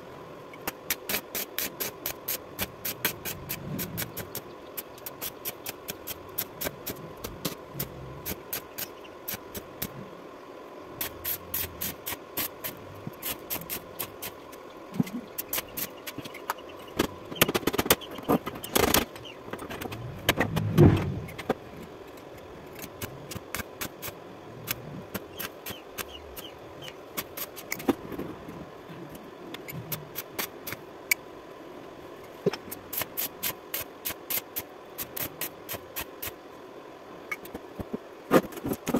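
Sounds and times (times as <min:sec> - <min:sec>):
welding arc crackling: 0:00.6 - 0:10.0, 0:11.0 - 0:21.6, 0:22.6 - 0:27.9, 0:32.4 - 0:36.4.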